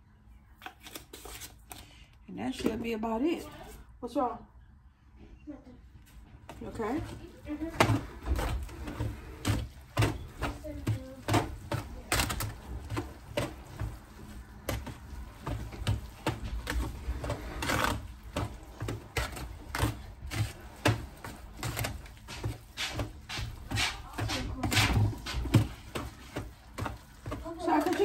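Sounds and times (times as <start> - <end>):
metal spoon scraping foil pan: 6.7 - 28.0.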